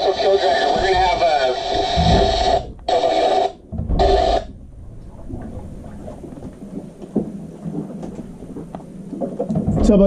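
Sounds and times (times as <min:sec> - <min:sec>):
faint radio clicks: 0:00.0 - 0:04.4
garbled radio noise bursts: 0:00.0 - 0:04.6.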